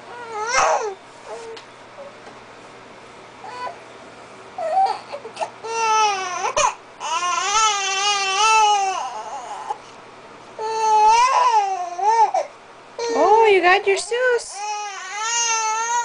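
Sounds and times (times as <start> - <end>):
infant crying: 0.1 - 1.5, 4.6 - 9.8, 10.6 - 13.4, 14.6 - 16.0.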